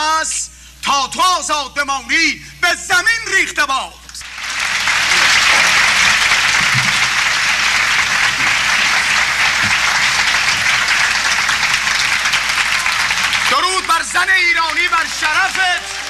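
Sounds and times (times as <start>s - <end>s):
crowd applauding: 4.2s - 16.0s.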